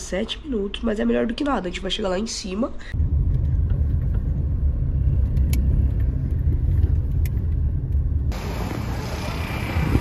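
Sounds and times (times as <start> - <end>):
car engine and road noise: 2.9 - 10.0.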